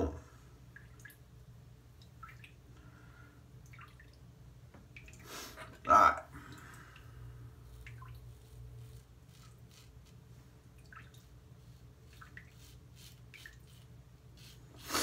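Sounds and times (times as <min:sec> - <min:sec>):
low steady hum: 0:00.0 - 0:15.0
razor scraping stubble: 0:07.6 - 0:10.3, 0:11.6 - 0:15.0.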